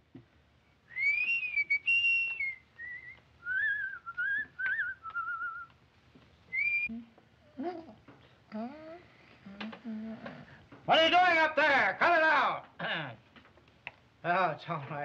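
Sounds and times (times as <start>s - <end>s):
person whistling a tune: 0.9s - 5.7s, 6.5s - 6.9s.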